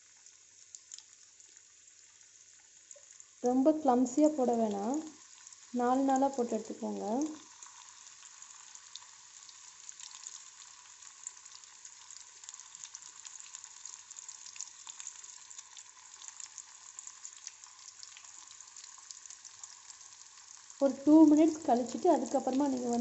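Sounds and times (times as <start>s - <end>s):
food sizzling in hot oil: 0.0s - 23.0s.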